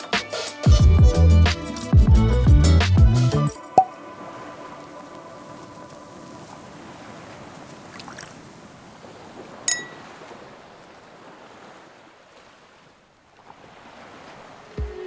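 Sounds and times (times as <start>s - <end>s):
wind and sea noise: 3.6s - 15.0s
wine glasses clinking: 9.7s - 10.1s.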